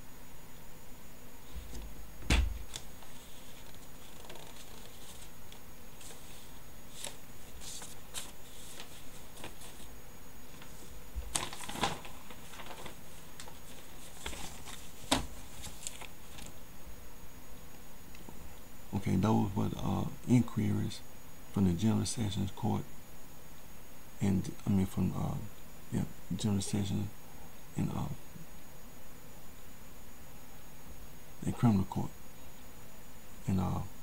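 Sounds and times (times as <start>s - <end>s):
paper rustling and shuffling: 1.5s - 9.9s, 10.5s - 16.6s.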